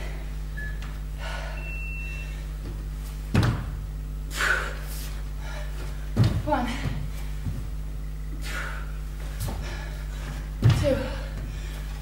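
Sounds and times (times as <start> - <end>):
steady low hum: 0.0 - 12.0
body thud on wooden floor: 2.6 - 3.8, 6.1 - 7.7, 10.6 - 11.1.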